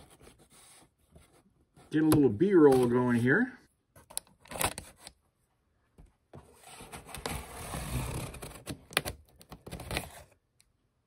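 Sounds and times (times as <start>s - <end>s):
cardboard box scraping: 6.5s - 8.7s.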